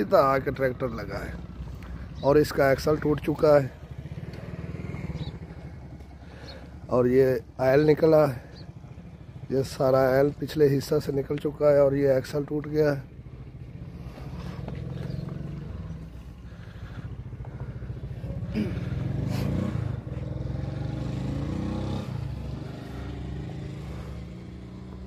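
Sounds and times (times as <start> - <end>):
vehicle passing by: 0.0 - 7.4, 11.7 - 25.0
vehicle engines running: 0.0 - 25.0.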